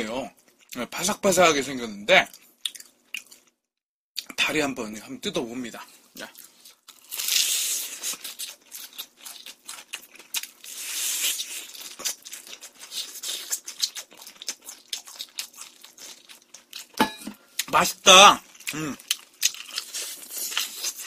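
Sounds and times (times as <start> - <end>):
crackles of chewing: 2.2 - 3.6, 5.8 - 21.0
crackly crunches of biting: 6.4 - 17.0, 18.5 - 21.0.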